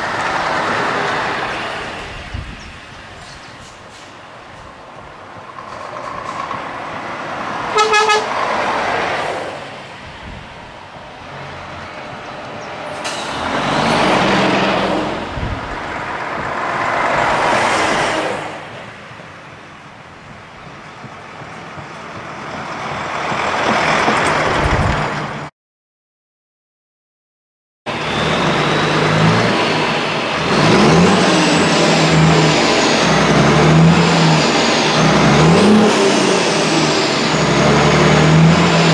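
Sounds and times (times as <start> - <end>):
heavy trucks driving past: 0.0 - 25.5, 27.9 - 38.9
truck horn blast: 7.7 - 8.4.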